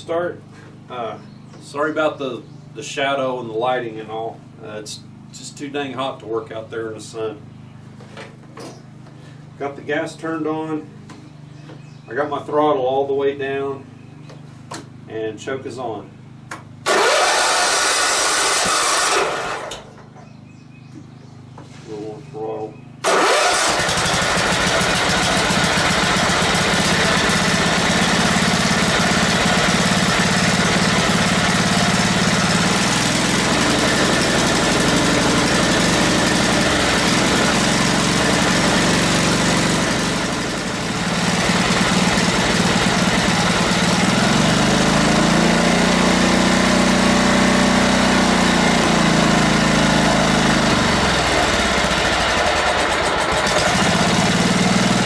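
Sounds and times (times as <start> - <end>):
mower engine sputtering: 16.8 - 20.4, 23.0 - 55.0.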